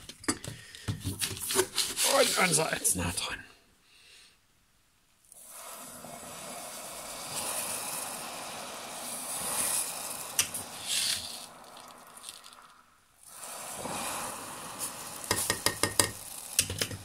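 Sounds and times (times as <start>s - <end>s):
soda hissing in hot water: 2.0s - 2.7s, 5.3s - 17.0s.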